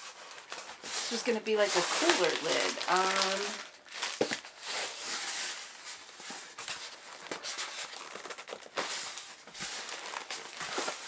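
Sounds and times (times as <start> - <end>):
foam scraping and rubbing: 0.8 - 3.5.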